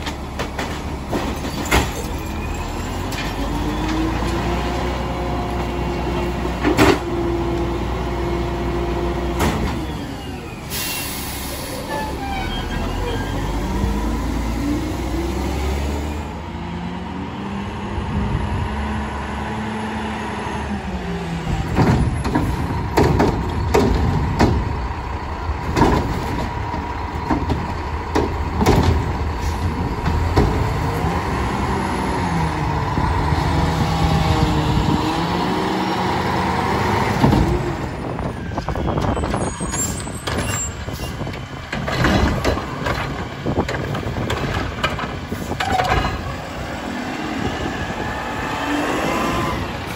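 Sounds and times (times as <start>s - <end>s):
bangs and clatters of bins: 0.0s - 4.4s, 6.6s - 7.2s, 21.5s - 24.8s, 25.6s - 31.2s, 37.1s - 46.5s
diesel engines revving: 0.0s - 49.9s.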